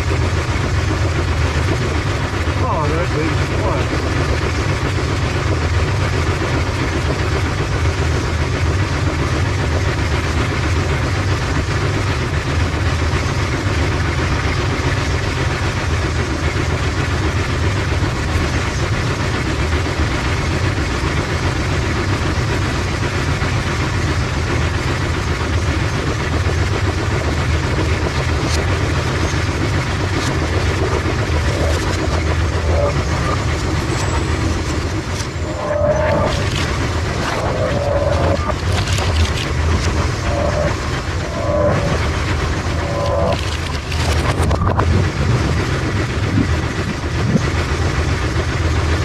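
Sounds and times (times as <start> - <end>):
pinsetter machinery running: 0.0 - 49.0.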